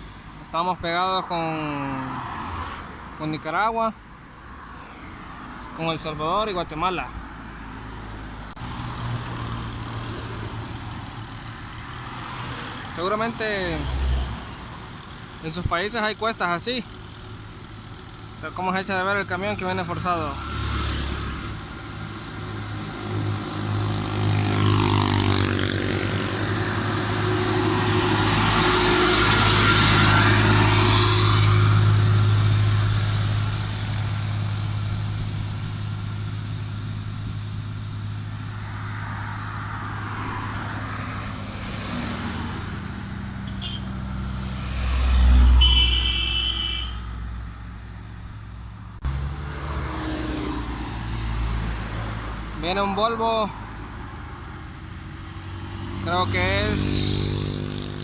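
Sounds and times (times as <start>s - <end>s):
truck diesel engine passing: 6.2s - 58.0s.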